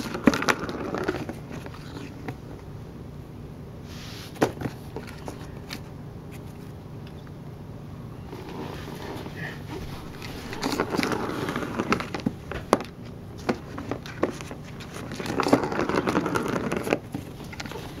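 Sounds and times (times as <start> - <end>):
plastic ball rattling in track: 15.0 - 17.7.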